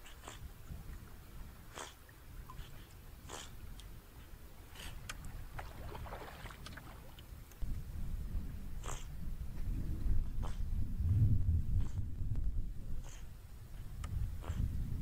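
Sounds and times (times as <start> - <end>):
paddle splashing water: 0.9 - 7.6
low rumble: 6.8 - 13.1.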